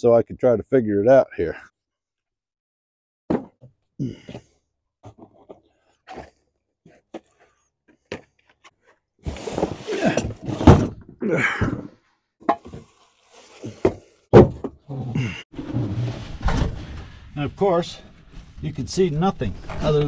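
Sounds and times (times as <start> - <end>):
fuel tank rattling and scraping: 15.5 - 20.0.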